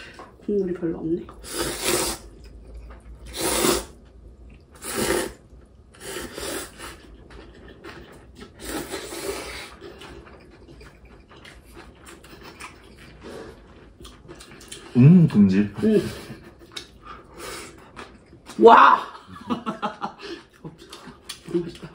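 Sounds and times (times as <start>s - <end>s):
person slurping noodles: 1.4s - 2.4s, 3.3s - 4.0s, 4.8s - 5.4s, 6.0s - 10.1s.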